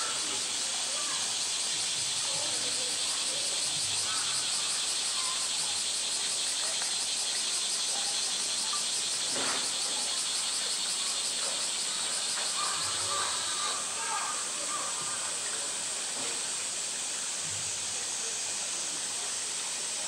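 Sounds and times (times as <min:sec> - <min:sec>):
cicadas buzzing: 0:00.0 - 0:20.0
faint human voices: 0:00.0 - 0:20.0.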